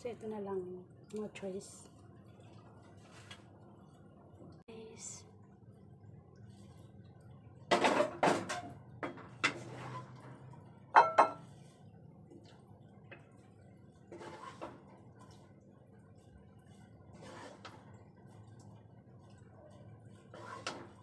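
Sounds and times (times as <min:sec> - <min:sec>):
kitchenware clattering: 0:11.0 - 0:11.4
ringing clinks of kitchenware: 0:11.0 - 0:11.4.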